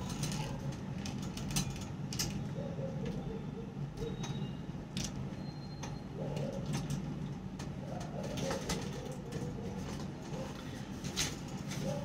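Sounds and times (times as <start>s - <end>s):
pigeon cooing: 2.4s - 4.5s, 6.1s - 6.8s, 7.8s - 10.8s, 11.7s - 12.0s.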